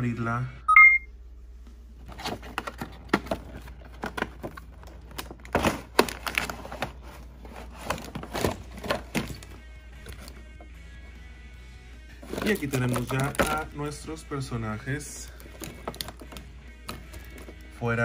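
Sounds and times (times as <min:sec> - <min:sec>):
packaging cracking and tearing: 0:02.6 - 0:06.9, 0:12.2 - 0:13.6, 0:15.3 - 0:17.5.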